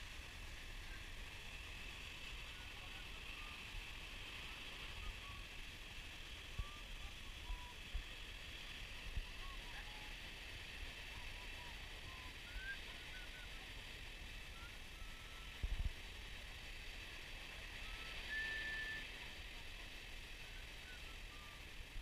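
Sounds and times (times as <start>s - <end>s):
steady high hiss: 0.0s - 22.0s
faint short chirps: 17.8s - 19.1s.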